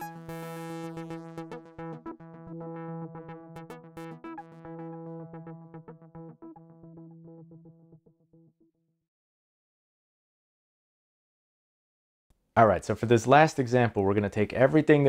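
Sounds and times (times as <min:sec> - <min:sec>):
synthesizer clicking notes: 0:00.0 - 0:08.6
synthesizer low tone: 0:00.0 - 0:08.7.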